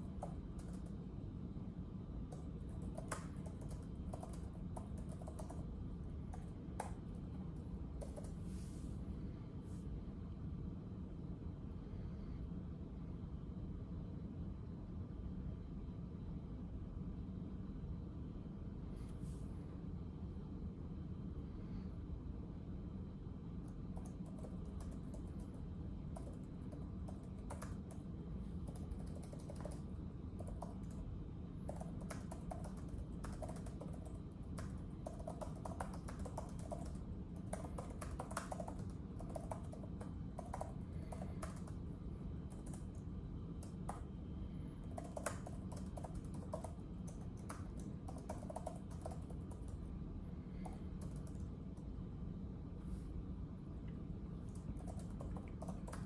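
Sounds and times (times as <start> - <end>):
keyboard typing: 0.0 - 1.0, 2.2 - 8.4, 23.6 - 44.2, 44.8 - 49.9, 50.6 - 51.9, 54.4 - 56.0
low background rumble: 0.0 - 56.0.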